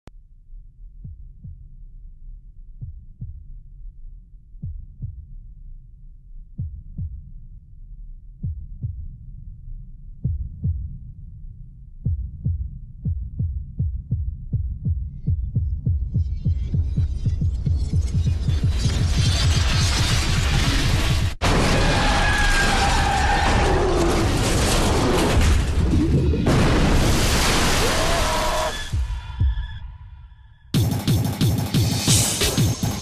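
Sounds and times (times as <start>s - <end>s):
heartbeat-like bass thumps: 0.6s - 19.5s.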